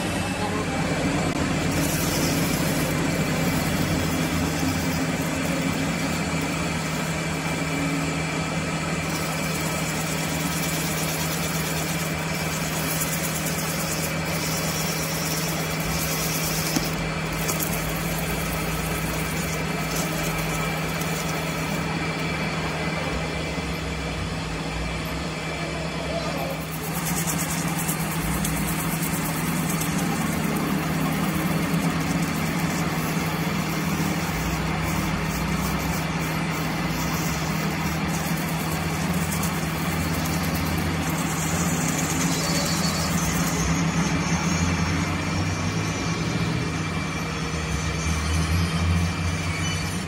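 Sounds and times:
metal lathe humming: 0.0 - 50.0
strip hissing against metal: 1.7 - 7.2, 9.1 - 21.9, 26.5 - 43.8.

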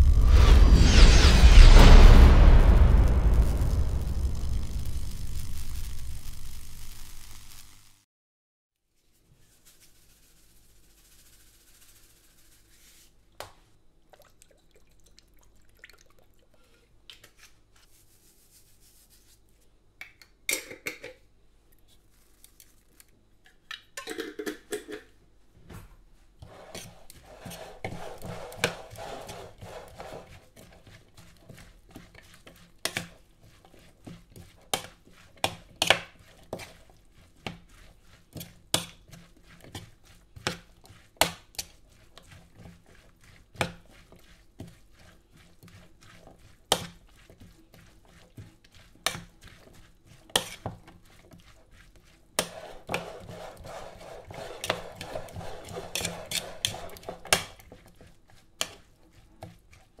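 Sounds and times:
wet rustle of vegetables: 8.8 - 19.8, 21.6 - 23.7, 26.1 - 60.0.

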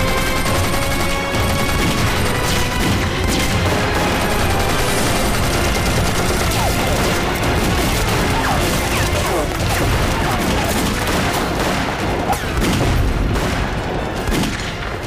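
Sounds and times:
background music: 0.0 - 15.0
rapid gunfire: 0.0 - 15.0
explosions: 6.5 - 15.0.

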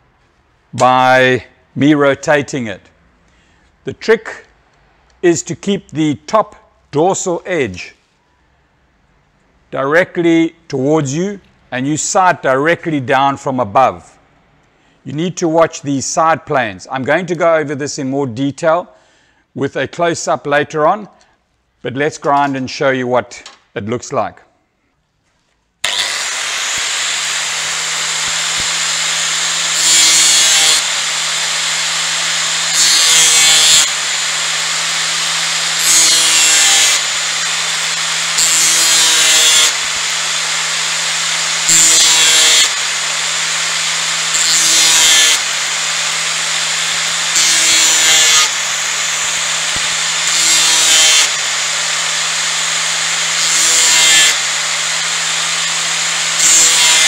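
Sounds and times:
angle grinder whining: 25.8 - 57.0
metal grinding rasp: 25.9 - 57.0.

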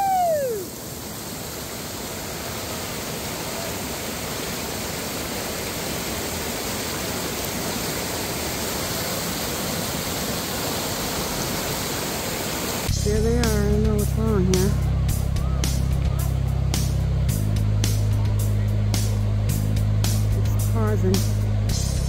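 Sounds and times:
rushing whitewater rapids: 0.0 - 12.9.

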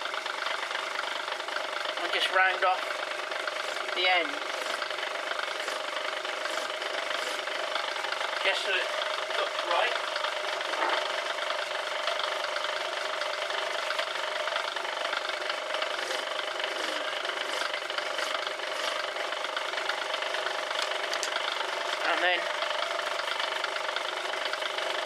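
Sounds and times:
metal lathe running: 0.0 - 25.0
hand file on turning metal: 3.4 - 7.8, 15.4 - 19.3.

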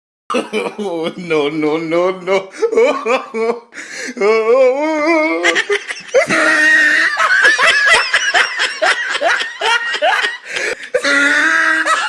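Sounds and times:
people laughing: 5.1 - 12.0.

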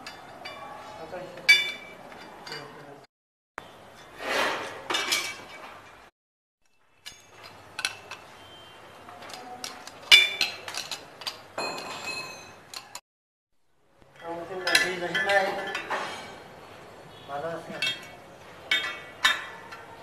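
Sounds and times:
spanner clinking on metal: 6.6 - 8.3, 14.1 - 16.4.

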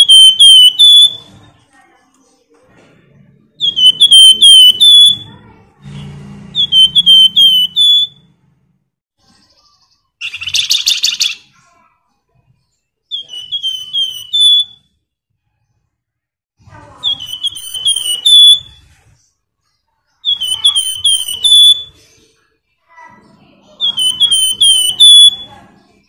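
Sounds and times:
caged songbird singing: 0.0 - 1.7, 2.9 - 15.6, 16.6 - 26.0
harsh bird call: 3.6 - 8.3, 20.2 - 22.2, 23.6 - 26.0.

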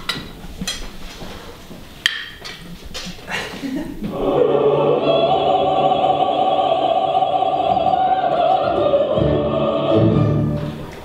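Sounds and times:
operatic singing high note: 4.1 - 10.9.

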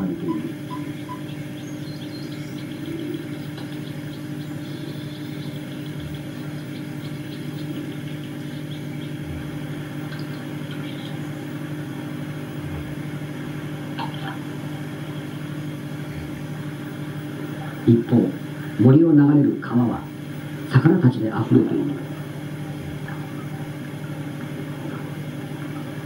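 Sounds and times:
faint high chirps: 0.0 - 12.5
steady low hum: 0.0 - 26.0.

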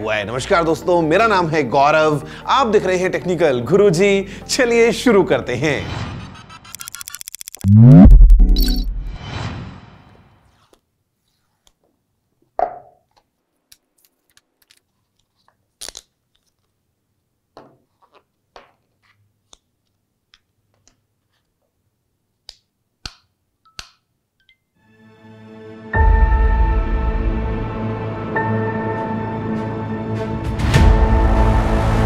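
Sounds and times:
music: 0.0 - 6.7, 24.8 - 32.0.

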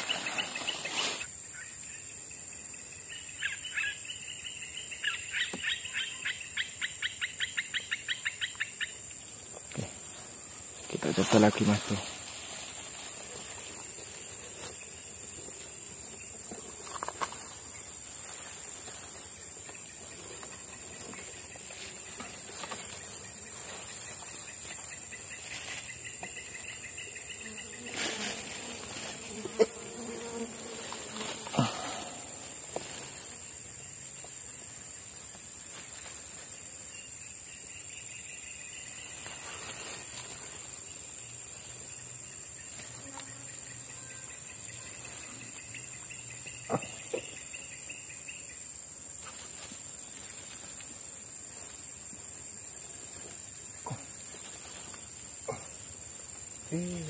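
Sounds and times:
rustles and clicks in grass: 0.0 - 1.4, 8.0 - 37.0, 38.4 - 43.6, 48.9 - 56.4
insects droning: 0.0 - 57.0.

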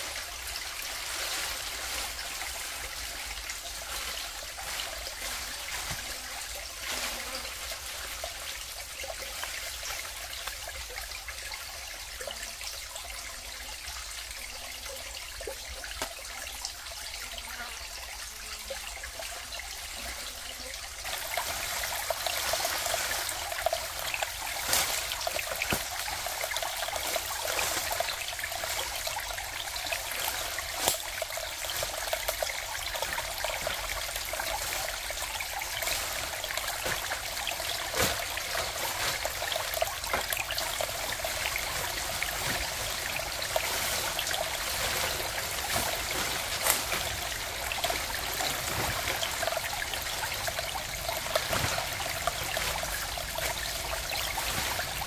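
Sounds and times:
trickling water: 0.0 - 55.0
sharp drip-like ticks: 20.6 - 45.1.

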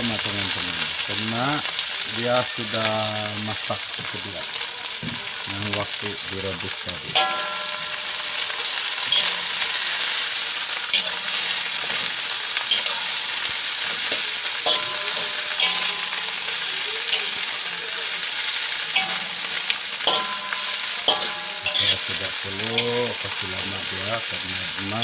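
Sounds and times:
vegetables sizzling in hot oil: 0.0 - 25.0
metal spatula scraping wok: 7.2 - 25.0.

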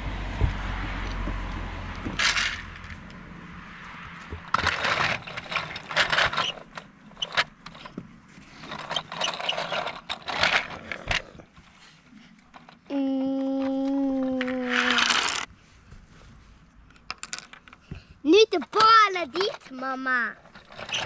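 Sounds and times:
plastic pieces rattling: 4.5 - 7.9, 8.6 - 11.2, 14.3 - 15.5
toy truck scraping on wooden table: 4.5 - 11.5.

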